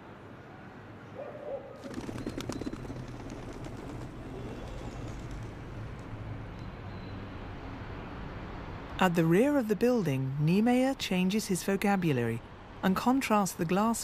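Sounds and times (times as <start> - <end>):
rapid clicks: 1.8 - 6.2.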